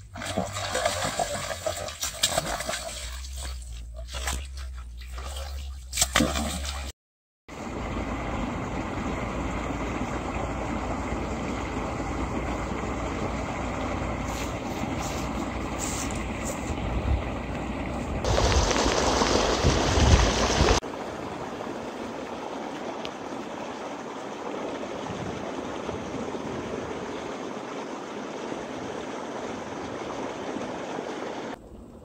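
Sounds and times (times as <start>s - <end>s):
fish splashing in water: 0.0s - 6.9s, 18.2s - 20.8s
steady rushing noise: 18.2s - 22.6s.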